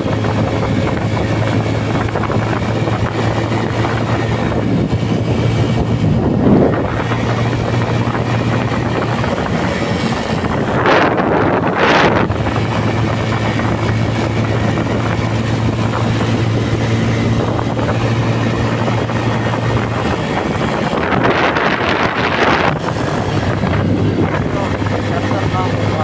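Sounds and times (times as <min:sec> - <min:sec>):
motorcycle engine cruising: 0:00.0 - 0:26.0
road and wind noise: 0:00.0 - 0:26.0
wind hitting microphone: 0:00.0 - 0:26.0.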